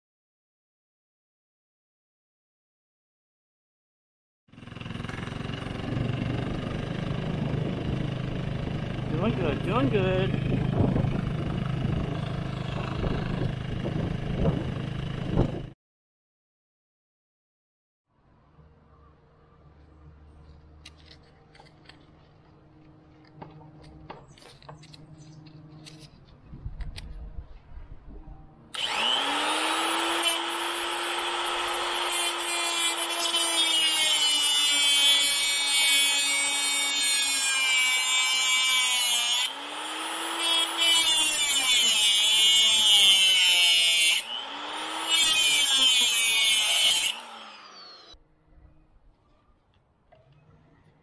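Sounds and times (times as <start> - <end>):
angle grinder cutting steel chain: 9.1 - 10.6, 28.8 - 48.2.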